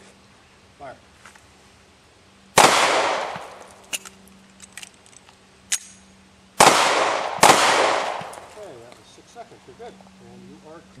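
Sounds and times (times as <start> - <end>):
pistol shot: 2.6 - 3.7, 6.6 - 8.6
pistol reloading clicks: 3.6 - 6.0.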